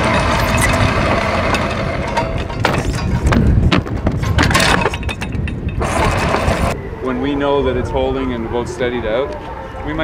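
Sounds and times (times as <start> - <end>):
anchor chain clanking and rattling: 0.0 - 6.8.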